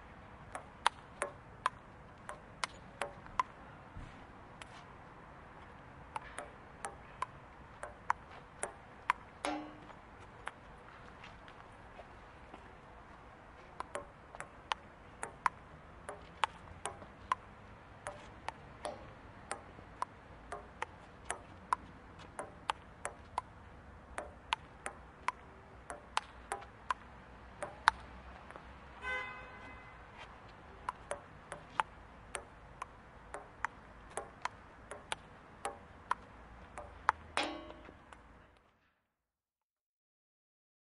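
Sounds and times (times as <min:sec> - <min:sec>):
ping pong ball clicks: 0:00.5 - 0:03.6, 0:06.1 - 0:10.6, 0:13.8 - 0:17.4, 0:18.0 - 0:23.5, 0:24.1 - 0:28.7, 0:30.8 - 0:38.3.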